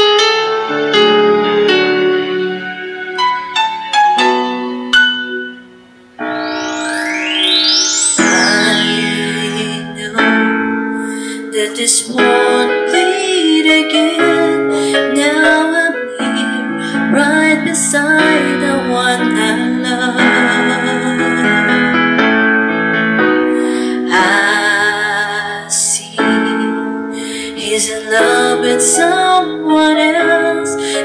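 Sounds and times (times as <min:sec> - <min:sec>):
electric piano chords: 0:00.0 - 0:31.0
woman singing: 0:08.2 - 0:21.9, 0:23.6 - 0:31.0.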